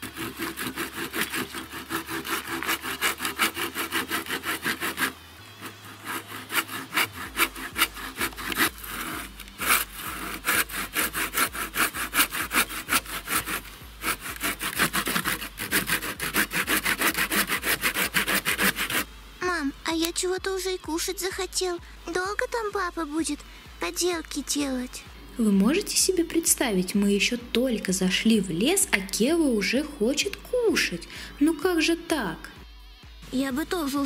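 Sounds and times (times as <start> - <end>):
hand saw cutting log: 0.0 - 19.1.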